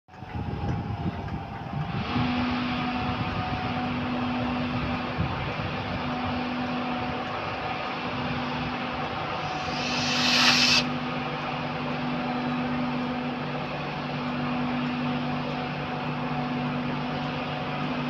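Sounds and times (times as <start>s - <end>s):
electric locomotive humming: 0.1s - 18.0s
fan-like machine noise: 0.1s - 18.0s.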